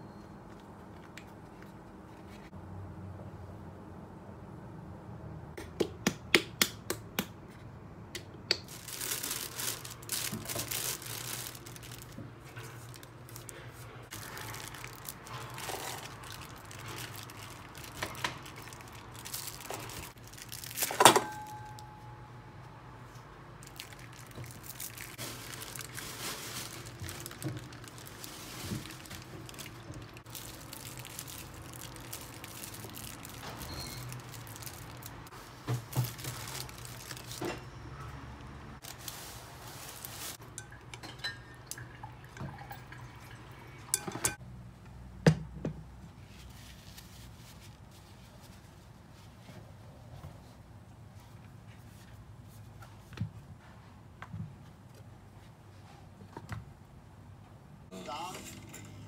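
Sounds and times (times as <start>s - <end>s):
plastic packaging crinkling and tearing: 8.7s - 21.1s, 23.6s - 37.6s, 38.8s - 40.4s.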